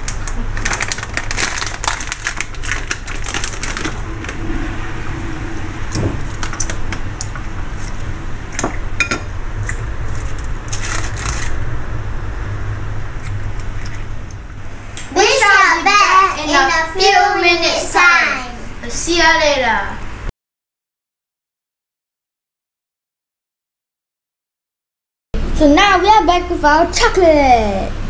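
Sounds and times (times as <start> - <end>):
baking paper rustling: 0.0 - 4.3, 10.0 - 11.6
steady low hum: 0.0 - 20.3.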